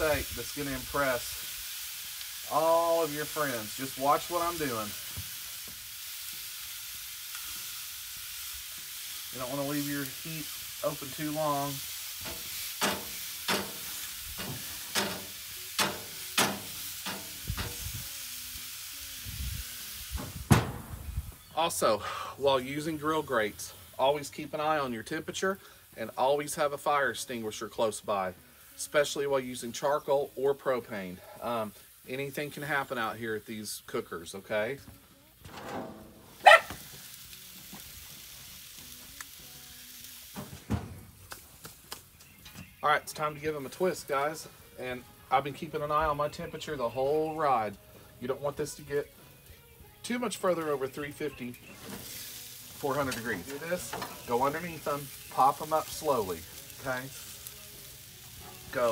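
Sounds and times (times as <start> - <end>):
steaks sizzling on grill: 0.0 - 58.9.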